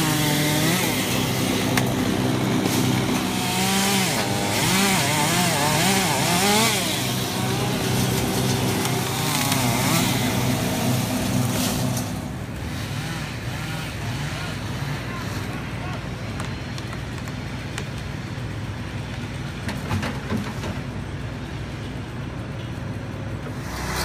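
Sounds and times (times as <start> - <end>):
chainsaw cutting tree limbs: 0.0 - 15.8, 23.5 - 24.0.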